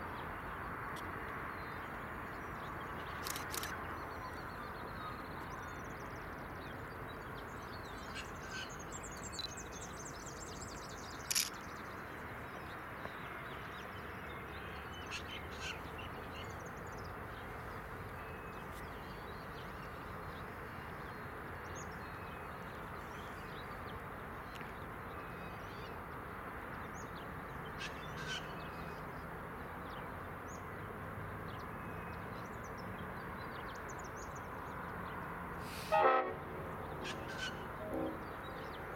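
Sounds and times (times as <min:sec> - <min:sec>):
birds calling: 0:27.7 - 0:29.0, 0:36.8 - 0:38.9.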